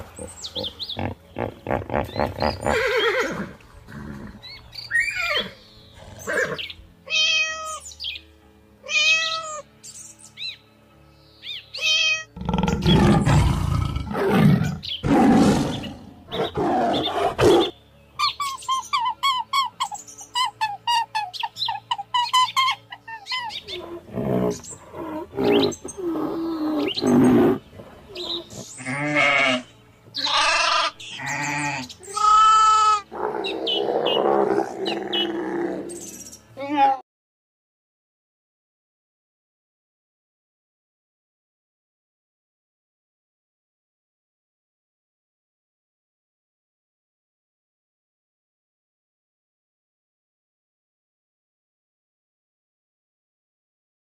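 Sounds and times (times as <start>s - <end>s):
loud harsh roaring calls: 33.1s - 36.0s.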